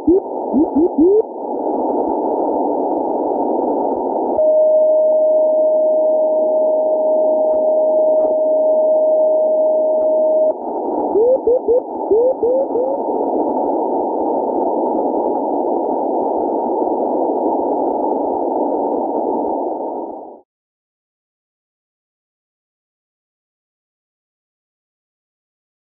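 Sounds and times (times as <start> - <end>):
chirping morse pips: 0.0 - 1.2, 11.2 - 13.0
receiver hiss: 0.0 - 4.6, 5.5 - 20.4.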